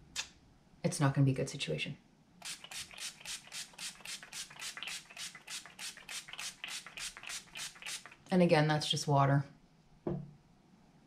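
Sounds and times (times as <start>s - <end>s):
spray bottle hissing: 2.4s - 8.2s.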